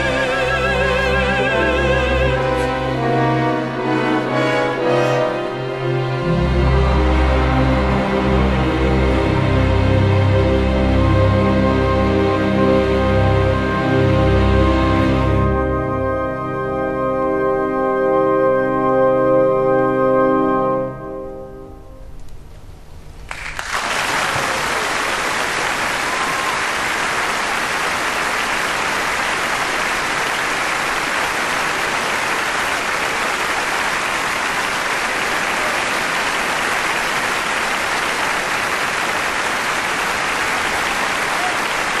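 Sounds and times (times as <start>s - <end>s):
audience applause: 23.3s - 42.0s.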